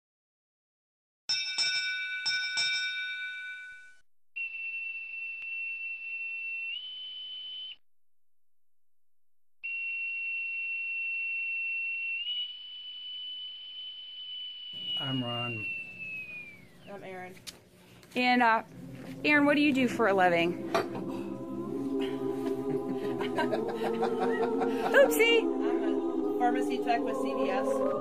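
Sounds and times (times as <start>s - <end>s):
high-pitched whine: 14.7s - 17.3s.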